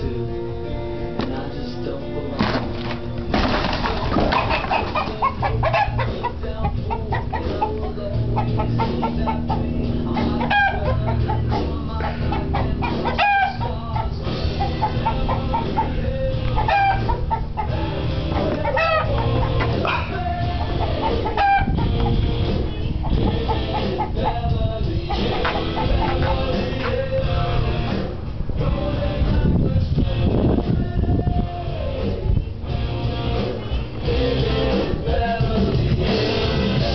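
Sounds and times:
background music with bass line: 0.0 - 36.9
chickens clucking: 2.4 - 28.3
rooster crowing: 10.2 - 15.9, 16.6 - 17.8, 18.4 - 21.8.

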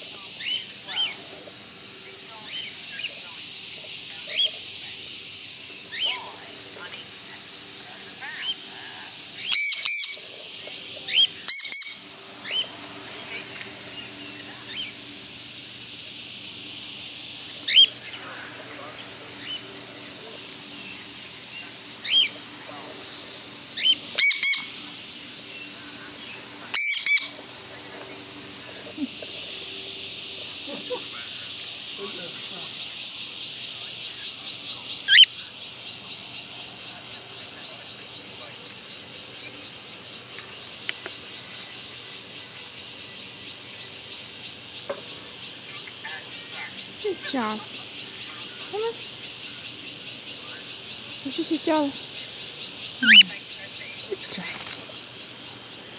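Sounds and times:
high-pitched insect chorus: 0.0 - 55.9
ringing bird calls: 0.2 - 1.3, 8.2 - 22.4, 23.6 - 27.5, 30.8 - 40.4, 43.5 - 55.4
sharp chirps: 11.2 - 15.1, 23.7 - 25.8, 26.8 - 27.4, 53.0 - 53.4.

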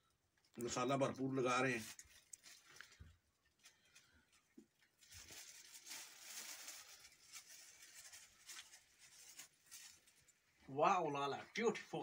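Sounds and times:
plastic bag handling: 1.2 - 10.4.

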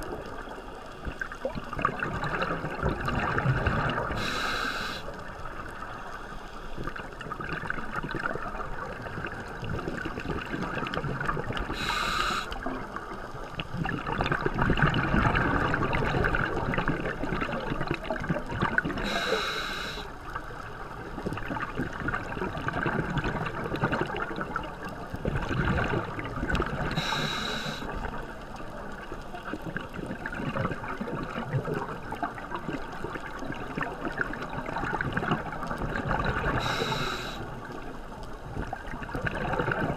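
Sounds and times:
bubbling exhalations: 1.4 - 4.4
regulator inhalation hiss: 4.2 - 5.2, 11.7 - 12.6, 19.0 - 20.1, 27.0 - 27.9, 36.6 - 37.6.

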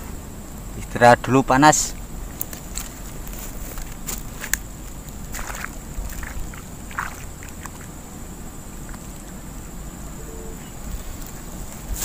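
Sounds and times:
thin high-pitched whine: 8.0 - 12.0.

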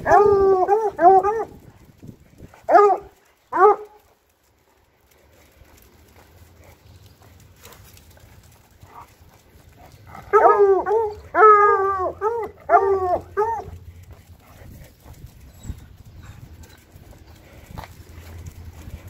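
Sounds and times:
dog baying: 9.7 - 14.6.

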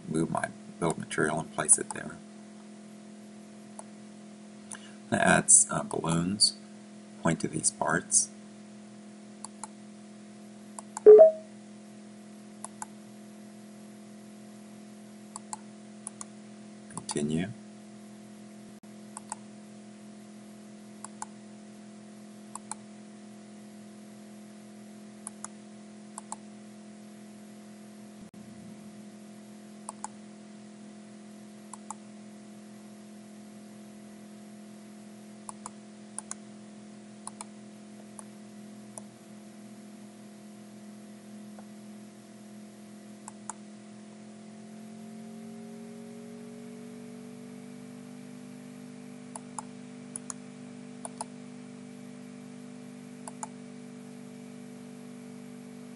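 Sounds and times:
steady multi-tone hum: 0.0 - 55.9
computer mouse clicks: 9.4 - 9.8, 12.6 - 12.9, 15.3 - 16.3, 19.1 - 19.4, 21.0 - 21.4, 22.5 - 22.8, 25.2 - 25.6, 26.2 - 26.4, 29.9 - 30.2, 31.7 - 32.0, 35.5 - 36.4, 37.2 - 37.5, 49.3 - 50.4, 51.0 - 51.3, 53.2 - 53.5.

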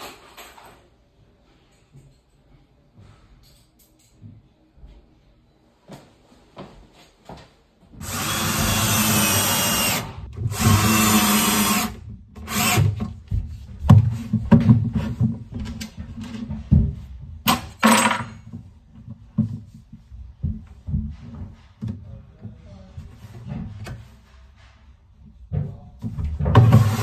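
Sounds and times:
cordless drill running: 8.0 - 12.9
handling knocks and clatter: 13.1 - 22.1.

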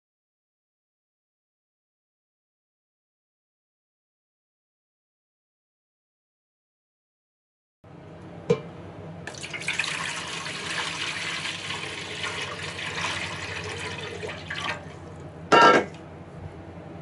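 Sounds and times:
water running or bubbling: 9.3 - 15.2.

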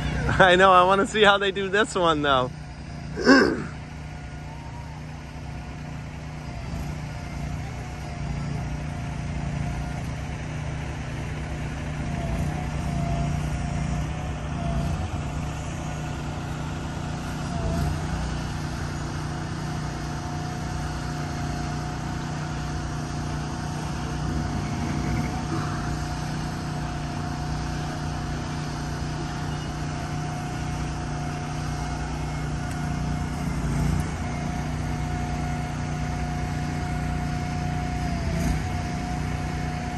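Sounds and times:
steady whine: 0.0 - 38.0
heavy truck engines running: 0.0 - 39.9.

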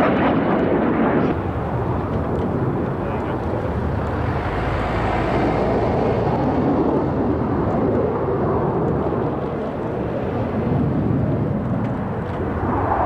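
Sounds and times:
jet aircraft rumble: 0.0 - 13.0.

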